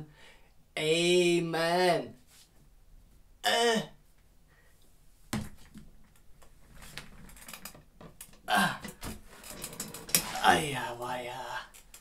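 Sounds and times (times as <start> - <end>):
chair frame and casters rattling: 6.8 - 10.5
man straining: 8.4 - 9.2.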